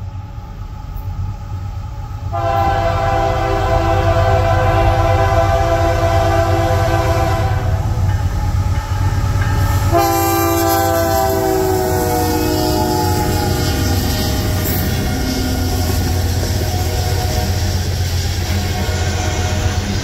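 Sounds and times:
train rumbling over rails: 0.0 - 20.0
locomotive horn blasting: 2.3 - 7.9, 9.9 - 20.0.

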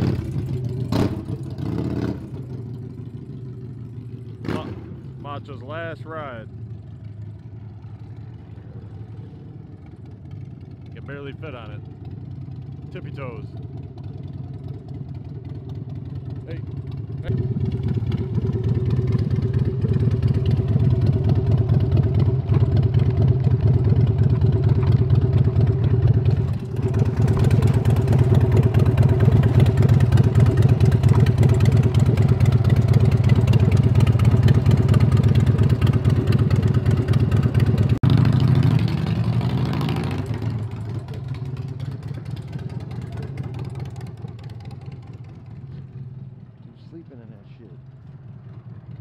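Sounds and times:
motorcycle engine accelerating: 0.0 - 49.0.

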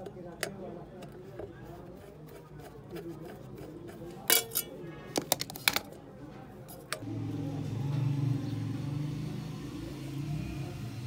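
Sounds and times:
churning machine motor humming: 7.0 - 11.0.

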